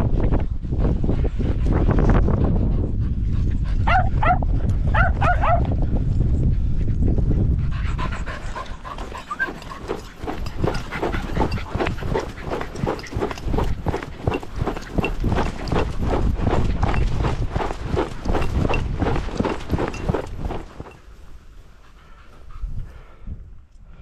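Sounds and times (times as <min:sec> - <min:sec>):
wind buffeting microphone: 0:00.0 - 0:24.0
dog barking: 0:03.8 - 0:05.7.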